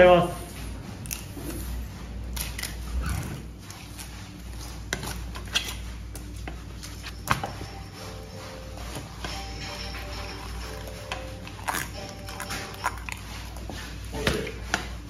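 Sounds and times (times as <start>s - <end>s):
faint background music: 0.0s - 15.0s
steady low hum: 0.0s - 15.0s.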